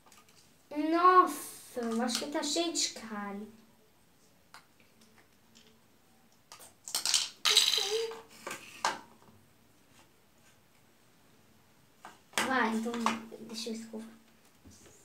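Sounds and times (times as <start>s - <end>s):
plastic toy pieces clattering: 6.5s - 8.2s.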